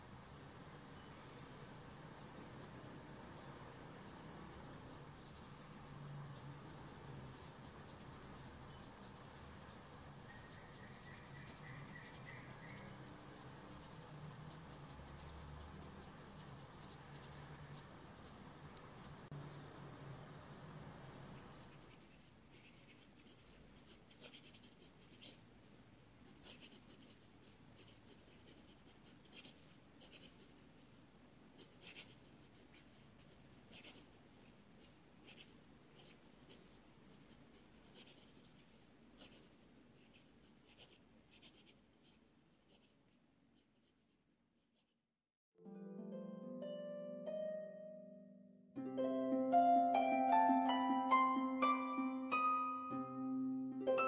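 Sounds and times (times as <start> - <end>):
soft scratches and ticks: 4.2 - 19.3, 21.3 - 31.0, 31.6 - 45.0.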